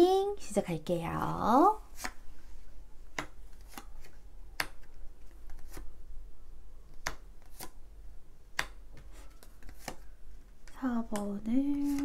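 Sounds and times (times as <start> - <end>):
cards snapping and tapping: 2.0 - 2.2, 3.1 - 5.9, 6.9 - 7.8, 8.5 - 10.1.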